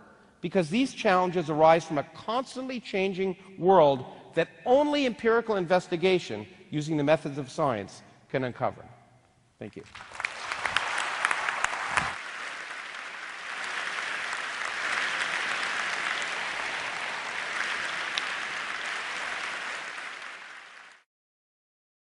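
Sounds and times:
large audience applauding: 0:09.8 - 0:21.1.

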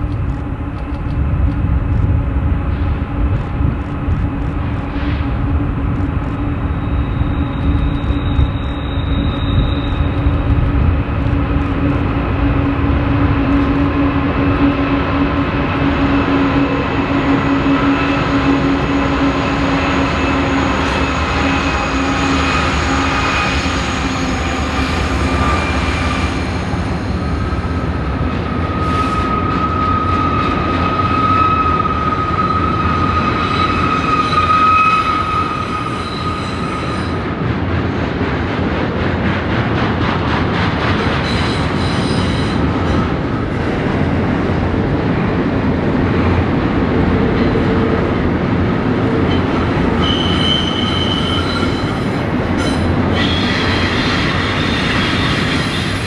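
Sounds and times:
freight train rumble: 0:00.0 - 0:56.0
wheel squeal: 0:06.7 - 0:10.2, 0:28.7 - 0:37.2, 0:50.0 - 0:56.0.

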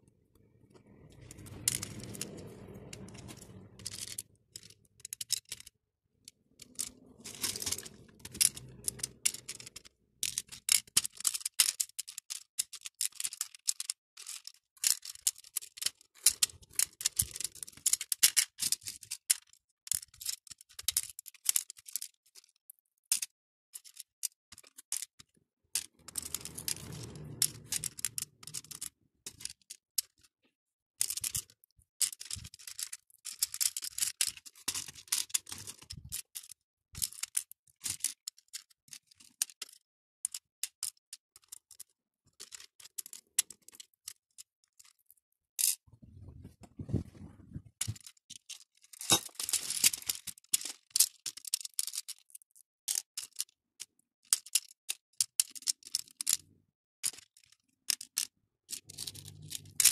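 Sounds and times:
dull rubbing and sliding: 0:00.1 - 0:05.1, 0:06.5 - 0:09.8, 0:25.9 - 0:28.8, 0:45.9 - 0:47.8
beads clicking in plastic tray: 0:06.6 - 0:25.1, 0:31.0 - 0:45.8, 0:48.0 - 0:53.6, 0:54.2 - 0:56.4.

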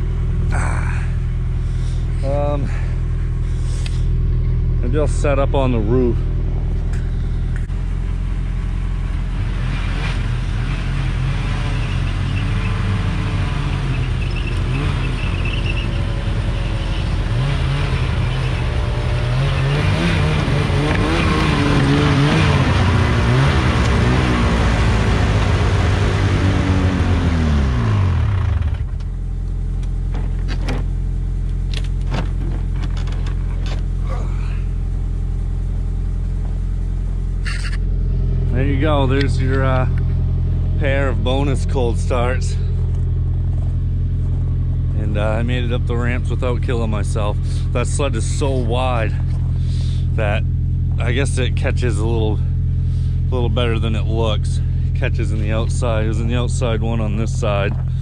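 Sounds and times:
engine idling: 0:00.0 - 0:58.0
snowmobile engine revving: 0:08.9 - 0:29.0, 0:37.4 - 0:42.8, 0:45.0 - 0:57.6.

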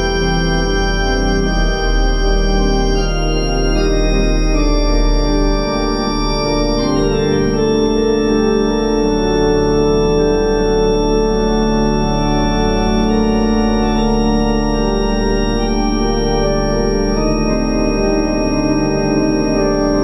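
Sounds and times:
organ chords: 0:00.0 - 0:20.0
organ pedal bass: 0:00.0 - 0:20.0.

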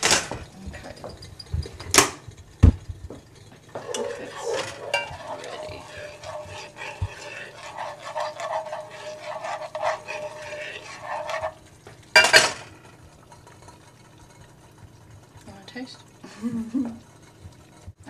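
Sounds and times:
metal spoon scraping saucepan: 0:00.8 - 0:01.8, 0:03.7 - 0:12.8.

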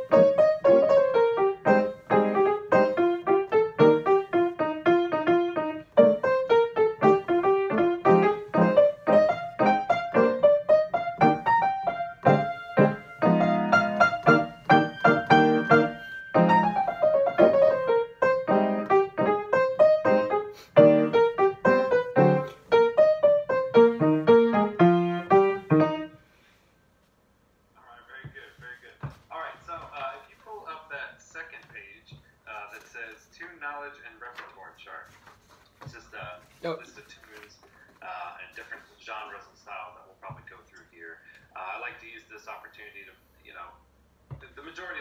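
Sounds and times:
grand piano playing: 0:00.0 - 0:26.2.

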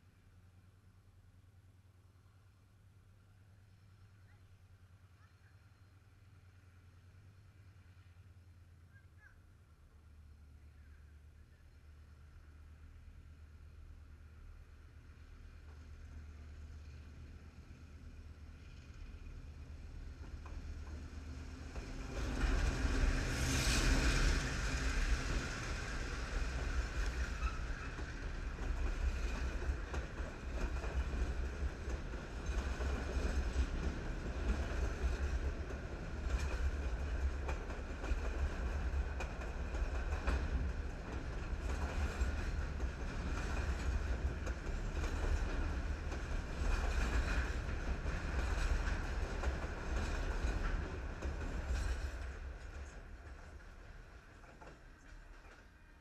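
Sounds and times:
diesel locomotive passing: 0:09.8 - 0:56.0
heavy rumble of wheels on rail: 0:14.0 - 0:56.0
wheels clicking over rail joints: 0:20.2 - 0:55.9.

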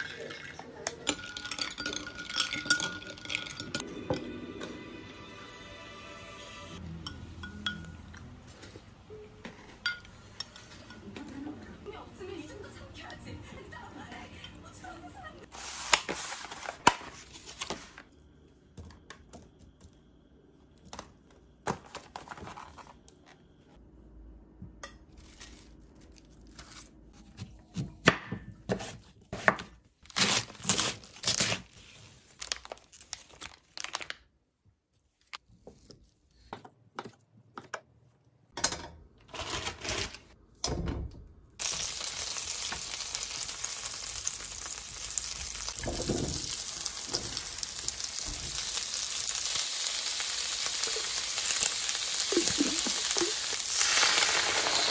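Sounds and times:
frying pan sizzling: 0:41.6 - 0:54.9.

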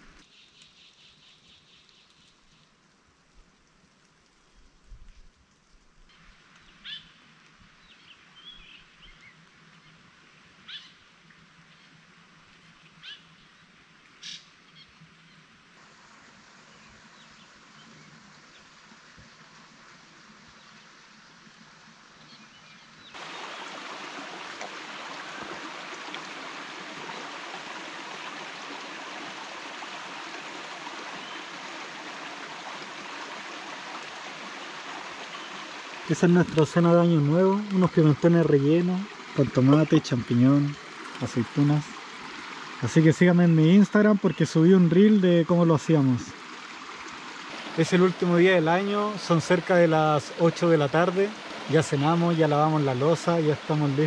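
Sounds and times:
loud steady water noise: 0:23.1 - 0:54.0.

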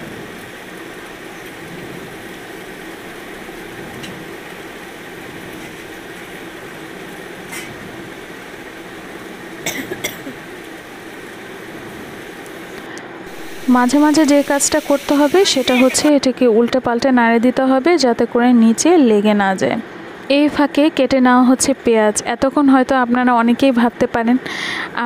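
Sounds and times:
vegetables sizzling in oil: 0:00.0 - 0:16.5.

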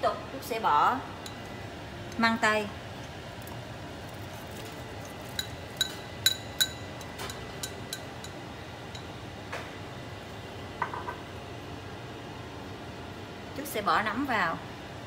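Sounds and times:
ceramic bowl clinking: 0:04.5 - 0:09.2
bowl tapping on metal pot: 0:05.4 - 0:09.1.

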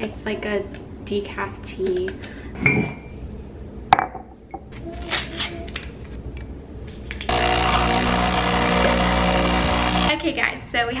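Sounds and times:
espresso machine pump humming: 0:07.3 - 0:10.1.

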